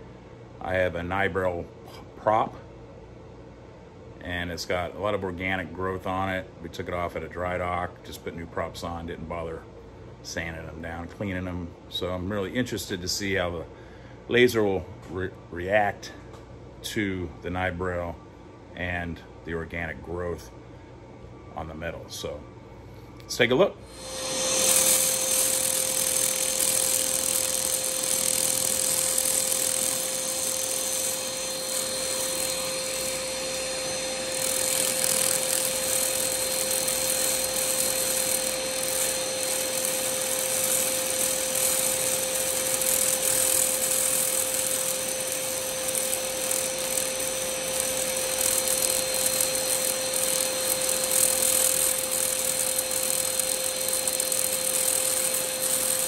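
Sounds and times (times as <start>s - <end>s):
mid-pitched hum: 0.0s - 56.0s
laser cleaner hiss and crackle: 23.9s - 56.0s.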